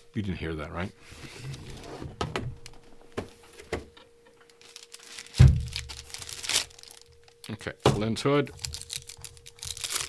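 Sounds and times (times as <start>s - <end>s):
plastic bag crinkling: 4.5s - 7.7s, 8.4s - 10.0s.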